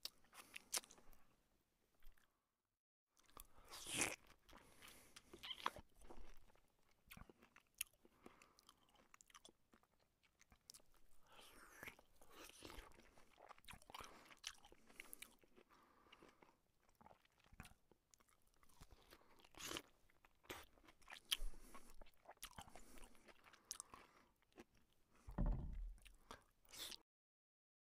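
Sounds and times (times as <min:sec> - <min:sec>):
soft chewing: 0:00.0 - 0:01.3, 0:02.0 - 0:02.4, 0:03.2 - 0:27.0
dull low thump: 0:25.3 - 0:26.0.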